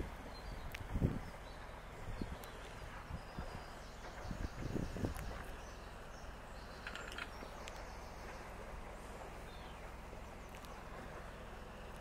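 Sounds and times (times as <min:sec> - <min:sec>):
low outdoor rumble: 0:00.0 - 0:12.0
bird chirps: 0:09.4 - 0:10.9.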